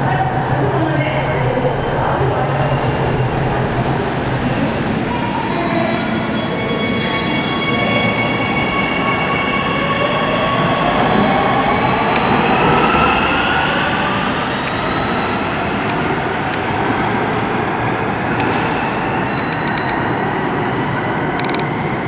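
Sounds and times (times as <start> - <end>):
train rumble in tunnel: 0.0 - 22.0
sharp clicks: 19.3 - 20.0.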